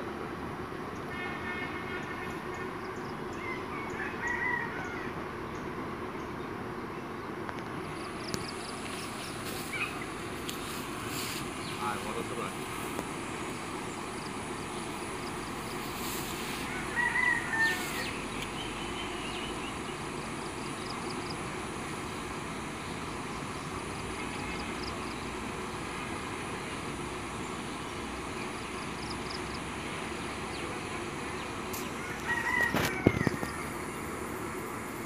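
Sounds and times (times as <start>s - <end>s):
outdoor background noise: 0.0s - 35.0s.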